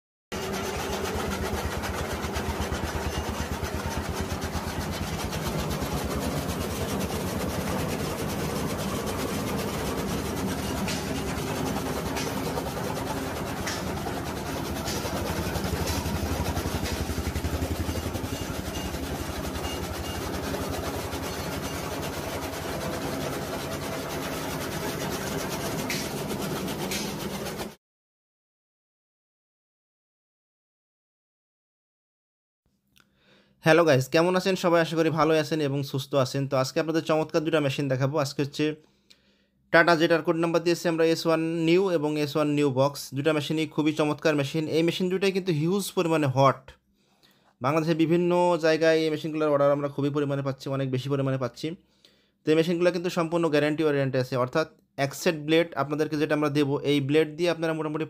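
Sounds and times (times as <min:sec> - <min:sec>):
straw being chopped rattle: 0:09.6 - 0:17.4, 0:25.0 - 0:27.6.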